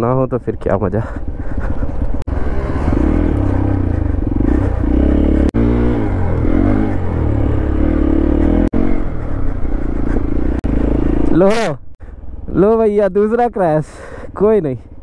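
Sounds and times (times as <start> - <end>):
motorcycle engine revving: 1.0 - 12.8.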